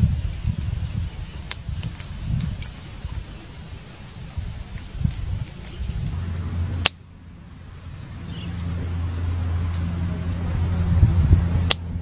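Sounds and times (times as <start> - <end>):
wind rumbling on microphone: 0.0 - 12.0
sharp clicks: 1.4 - 7.0.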